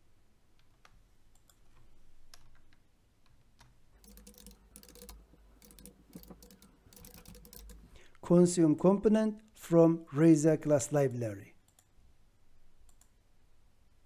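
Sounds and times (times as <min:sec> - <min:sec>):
keyboard typing: 0:03.6 - 0:08.0.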